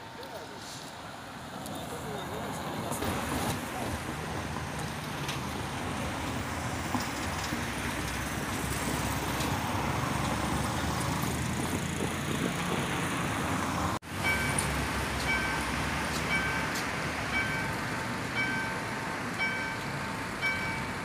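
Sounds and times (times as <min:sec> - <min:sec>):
road traffic rumble: 0:00.0 - 0:21.0
crossing warning bell dinging: 0:14.1 - 0:21.0.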